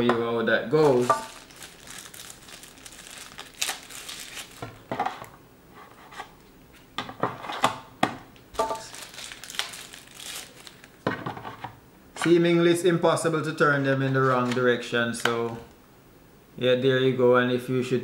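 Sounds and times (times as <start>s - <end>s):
wrapping crinkling: 0.7s - 4.9s, 8.6s - 11.0s, 13.8s - 14.7s.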